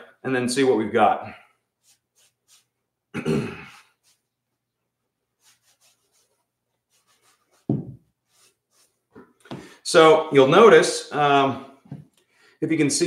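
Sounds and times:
leather belt taps and rubs: 7.2 - 8.5.

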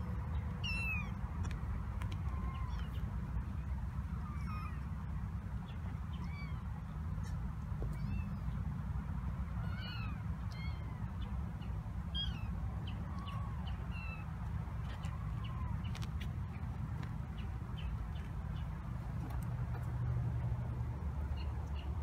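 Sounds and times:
kittens mewing: 9.6 - 11.1.

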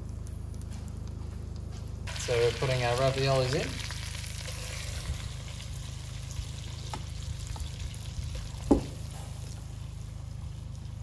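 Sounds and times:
sauce sizzling in a pan: 2.1 - 10.6
sharp knock against the pan: 8.7 - 9.0.

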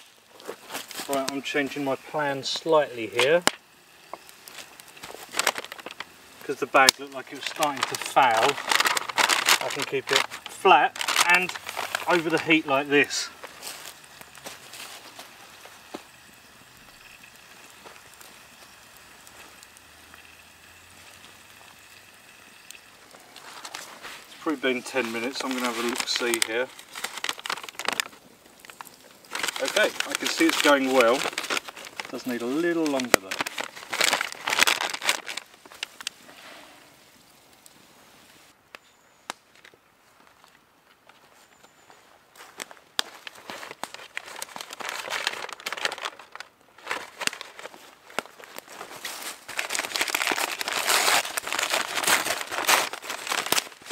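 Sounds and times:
paper bag crinkling: 0.0 - 3.5, 4.1 - 16.2, 23.0 - 36.2, 42.4 - 53.9
embers hissing: 0.0 - 38.6
fire crackles: 0.0 - 53.9.

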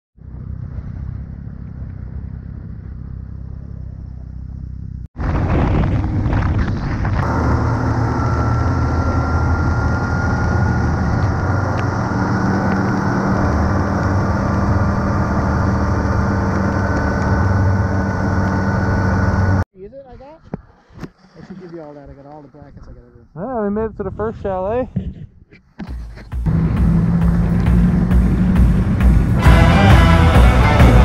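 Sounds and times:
snowmobile running at speed: 0.2 - 19.6, 26.4 - 31.0
snowmobile engine rumbling: 0.2 - 31.0.

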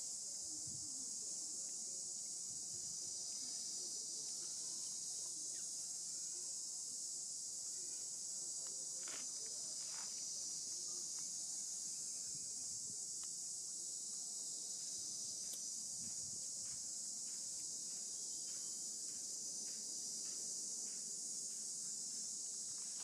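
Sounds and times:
insects chirring: 0.0 - 23.0.

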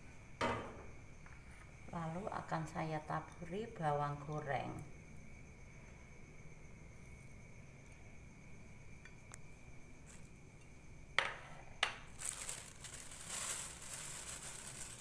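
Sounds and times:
rustling: 12.1 - 15.0.

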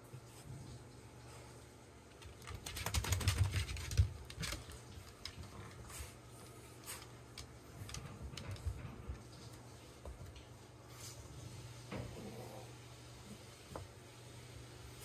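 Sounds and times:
dog claws pattering on floor: 2.1 - 10.6.

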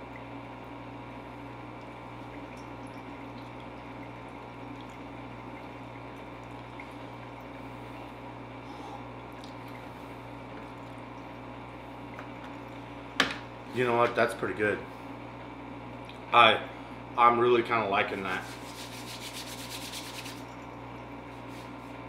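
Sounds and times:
watery trickle: 0.0 - 13.2
low electrical hum: 0.0 - 22.0.

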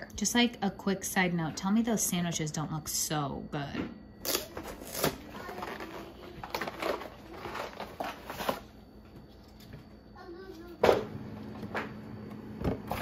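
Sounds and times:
packaging rustling and crackling: 4.3 - 8.8.

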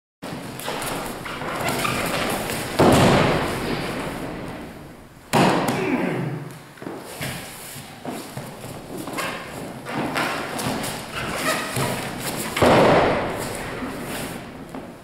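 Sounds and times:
body thudding on foam mat: 8.2 - 14.4.

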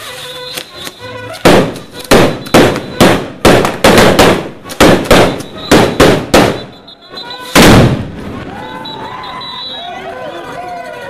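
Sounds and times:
fireworks bangs: 0.6 - 9.2.

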